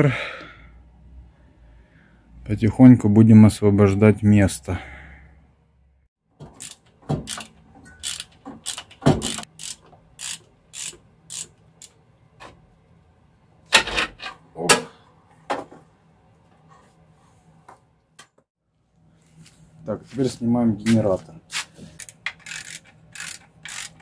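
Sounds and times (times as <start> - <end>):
ratchet wrench clicking: 6.6 - 12.0, 22.0 - 24.0.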